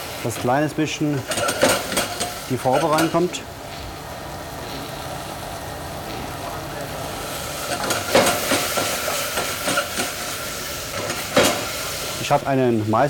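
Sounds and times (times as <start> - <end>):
shallots sizzling in a saucepan: 0.0 - 13.0.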